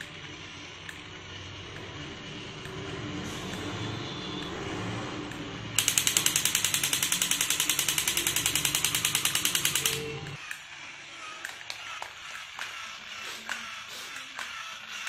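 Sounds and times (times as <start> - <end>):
toy gear motor whirring: 0.0 - 15.0
toy gun rapid-fire rattle: 5.8 - 15.0.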